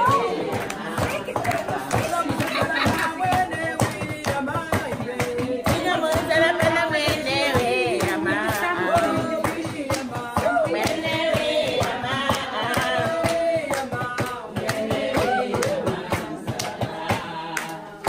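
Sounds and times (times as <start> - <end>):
hands clapping: 0.0 - 18.0
women singing together: 0.0 - 18.0.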